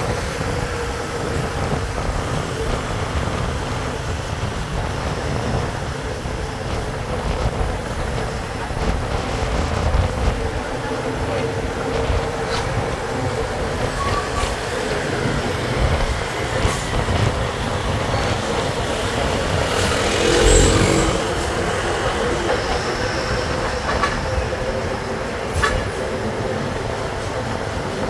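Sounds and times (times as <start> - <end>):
road noise: 0.0 - 28.0
truck engine rumble: 16.9 - 24.9.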